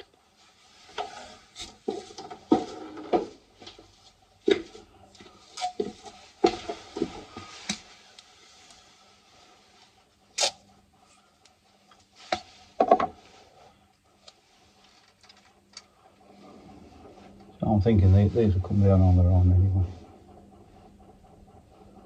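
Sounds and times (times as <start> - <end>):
hands handling tools and wiring: 13.9 - 15.9.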